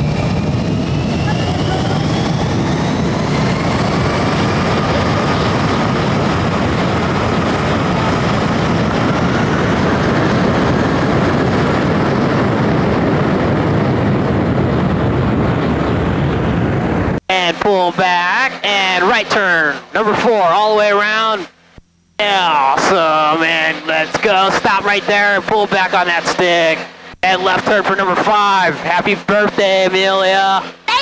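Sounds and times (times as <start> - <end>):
wind rushing: 0.0 - 17.2
jet engine roar: 0.0 - 21.6, 22.2 - 31.0
faint engine whine: 0.0 - 31.0.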